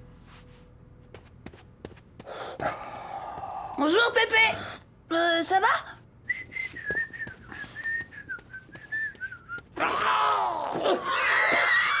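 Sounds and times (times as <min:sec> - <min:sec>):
boy whistling a tune: 0:06.3 - 0:09.6.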